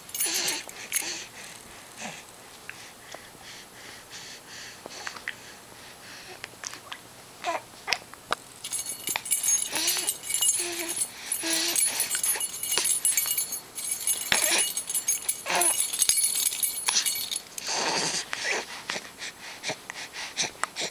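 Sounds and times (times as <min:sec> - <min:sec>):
keys jingling: 0:00.0 - 0:01.1, 0:08.6 - 0:17.7.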